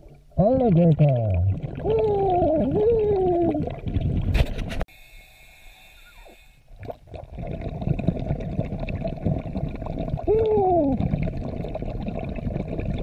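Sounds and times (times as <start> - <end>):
dense underwater noise: 0.0 - 4.9, 5.7 - 13.0
diver's muffled voice underwater: 0.4 - 3.8, 10.2 - 11.1.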